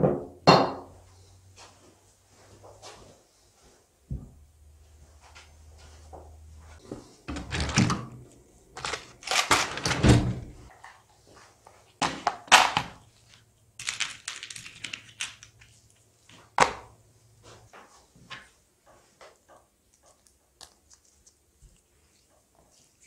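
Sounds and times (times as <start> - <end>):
metal parts clattering on workbench: 8.8 - 10.1.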